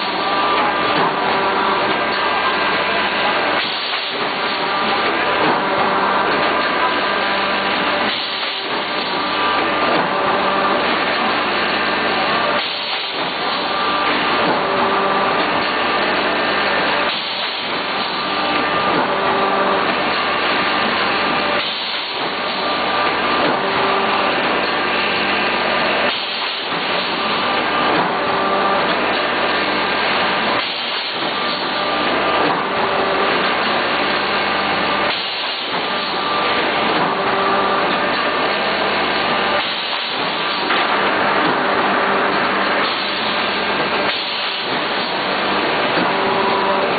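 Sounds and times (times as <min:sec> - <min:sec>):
machine humming with hiss: 0:00.0 - 0:46.9.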